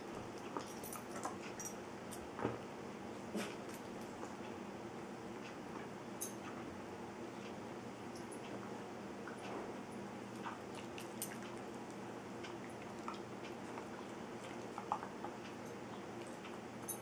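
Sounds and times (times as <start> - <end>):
small clicks and mouthing sounds: 10.3 - 17.0.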